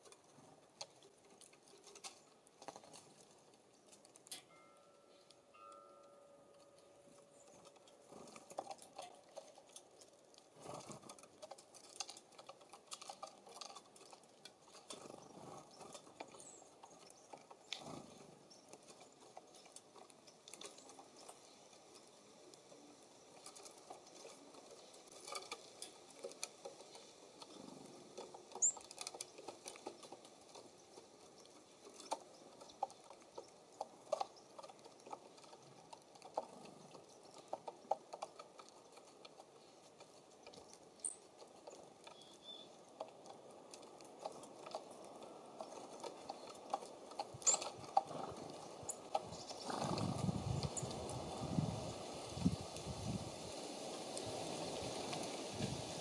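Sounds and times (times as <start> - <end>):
woodpecker pecking: 0.0 - 52.3
birds tapping and clicking: 0.0 - 53.2.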